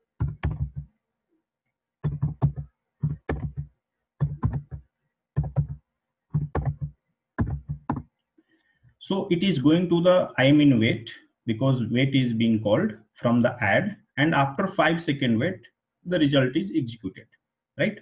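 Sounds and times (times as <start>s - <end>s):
typing on a keyboard: 0.2s - 0.9s, 2.0s - 4.8s, 5.4s - 8.0s.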